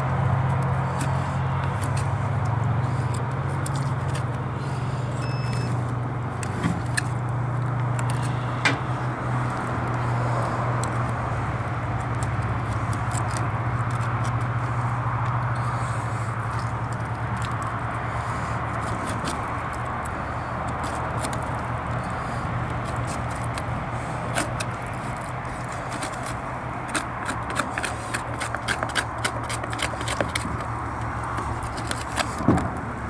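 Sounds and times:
knife scraping and clicking on bone: 0.5s - 4.4s, 12.0s - 32.5s.

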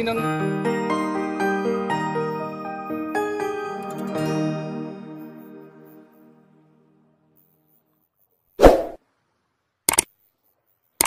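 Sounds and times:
short swoosh: 8.6s - 9.0s.

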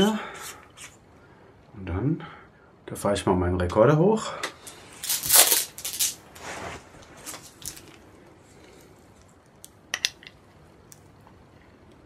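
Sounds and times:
handling rustle: 5.0s - 8.0s.

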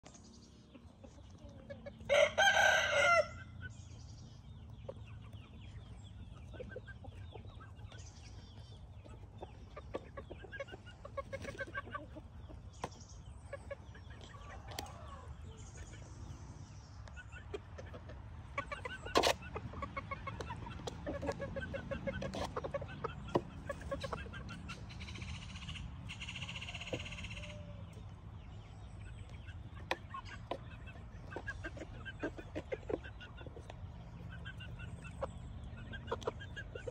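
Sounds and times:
chickens clucking: 0.0s - 36.9s
chickens pecking grain in plastic jug: 0.5s - 36.9s
loud chicken crow: 2.0s - 3.6s, 26.1s - 28.0s.

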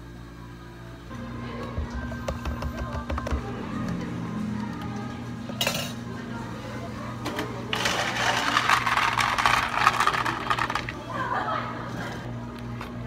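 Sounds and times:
ice cubes clattering: 7.7s - 11.0s.

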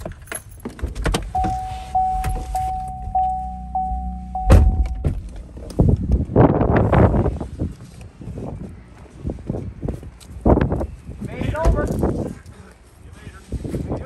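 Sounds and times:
truck warning chime dinging: 1.3s - 5.3s
low engine hum: 1.3s - 9.8s
loud door thunk: 4.4s - 5.3s.

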